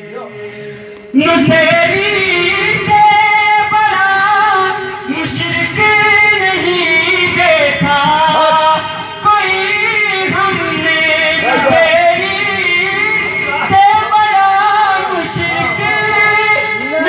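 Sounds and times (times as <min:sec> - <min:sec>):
man singing solo: 0:11.0 - 0:12.7.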